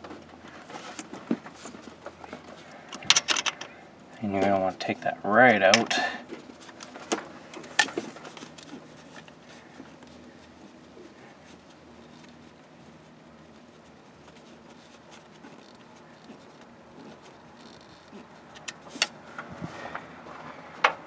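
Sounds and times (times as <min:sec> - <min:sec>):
low steady hum: 0:00.0 - 0:21.0
hand rustling and ticking: 0:04.3 - 0:20.1.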